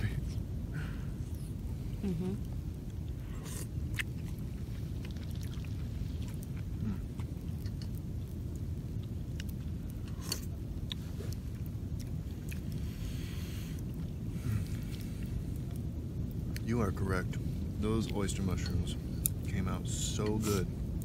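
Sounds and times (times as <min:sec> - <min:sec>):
low rumble: 0:00.0 - 0:21.0
people chewing and slurping: 0:00.8 - 0:08.4, 0:09.0 - 0:15.9.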